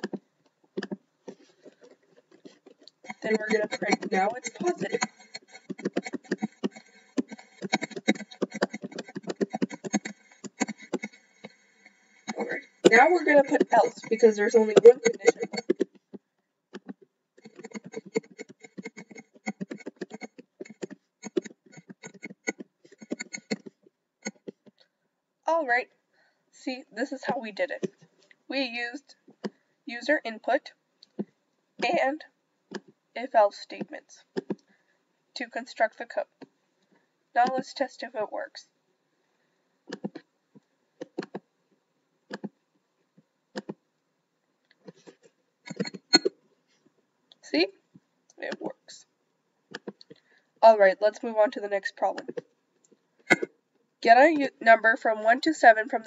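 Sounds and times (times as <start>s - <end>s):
typing on computer keyboard: 3.0s - 11.2s, 12.2s - 16.0s, 16.8s - 24.5s.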